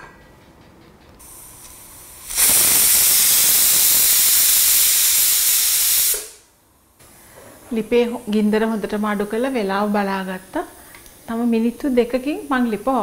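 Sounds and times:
pressure cooker steam hissing: 1.2 - 6.4, 7.9 - 13.0.

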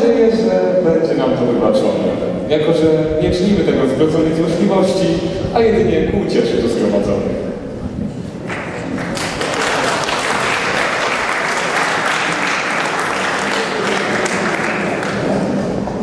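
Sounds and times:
audience applauding: 8.5 - 16.0.

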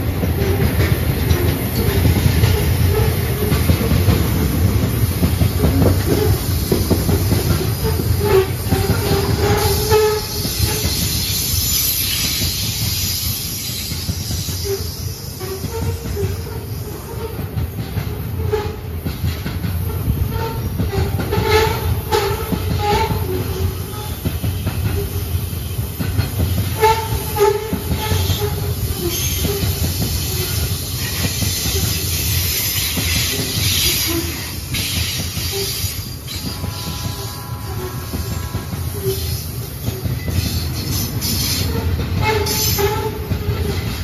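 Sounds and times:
train wheels rumbling on rails: 0.0 - 44.0
wheels clicking and squealing: 18.4 - 44.0.

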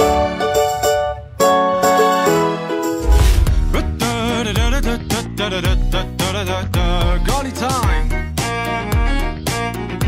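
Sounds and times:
background music with drum beat: 3.0 - 10.0.

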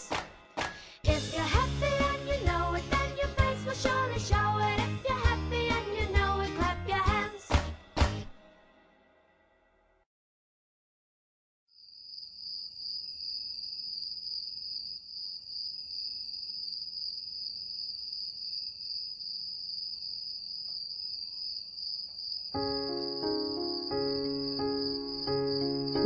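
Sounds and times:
high-pitched insect trill: 11.8 - 26.0.

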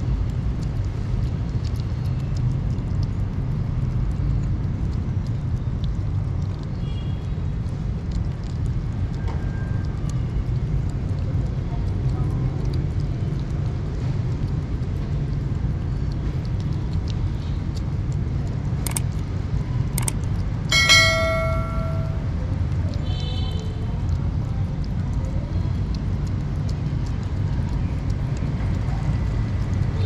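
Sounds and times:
kittens chewing and lapping: 0.0 - 21.2, 22.0 - 30.0
clicks: 18.8 - 19.0, 20.0 - 22.2
bell-like ding: 20.7 - 22.4.

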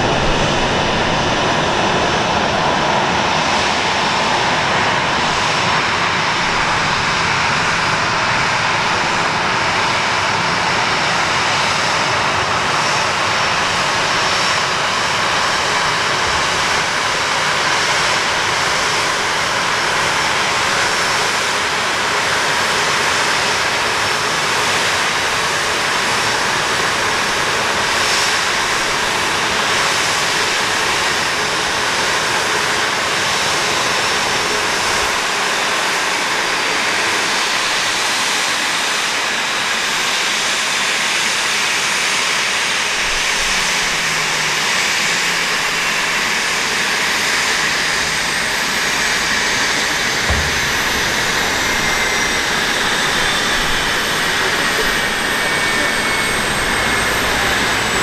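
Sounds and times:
jet engines rushing: 0.0 - 58.0
faint high whine: 43.2 - 58.0.

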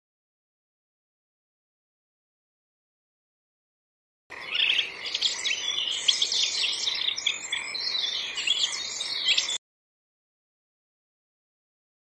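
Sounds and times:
songbirds chirping: 4.3 - 9.6.

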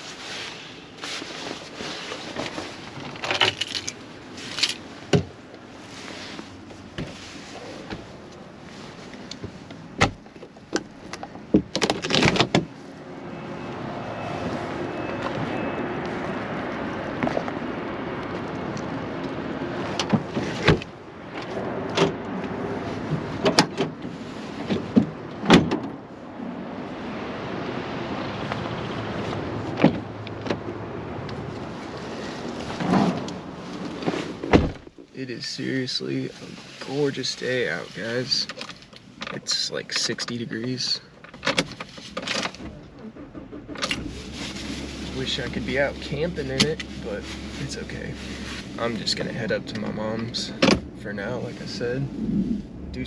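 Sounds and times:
handling clicks and knocks: 9.2 - 12.7
truck engine running: 42.7 - 53.0.

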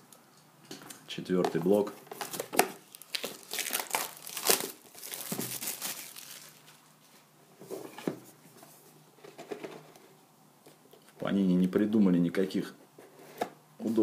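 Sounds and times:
plastic shrink wrap tearing: 2.2 - 6.8.

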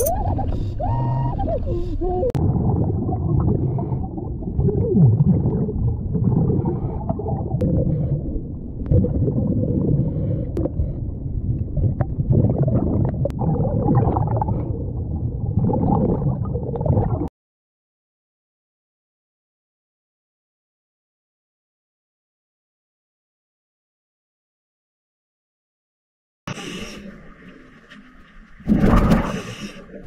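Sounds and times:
muffled underwater rumble: 0.0 - 17.3, 26.5 - 30.0
water gurgling: 0.0 - 17.3, 26.6 - 30.0.

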